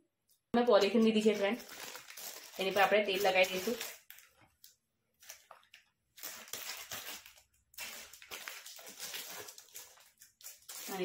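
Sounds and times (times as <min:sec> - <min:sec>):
soft plastic rustling and squishing: 0:00.3 - 0:11.0
hands rubbing plastic sheet: 0:00.8 - 0:04.1, 0:06.4 - 0:11.0.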